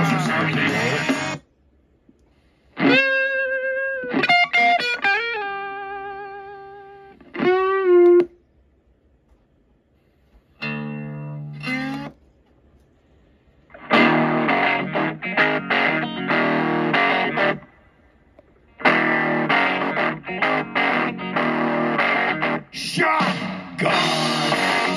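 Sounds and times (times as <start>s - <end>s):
guitar music from speakers: 0.0s - 1.4s, 2.8s - 8.4s, 10.6s - 12.2s, 13.7s - 17.8s, 18.7s - 24.9s.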